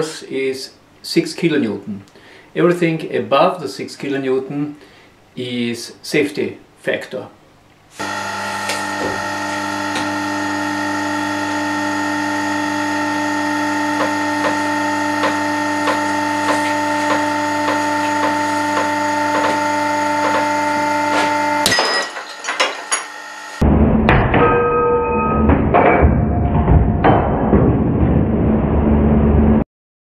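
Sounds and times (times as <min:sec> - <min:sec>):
motor whining: 0:08.0 - 0:21.7, 0:22.3 - 0:23.6.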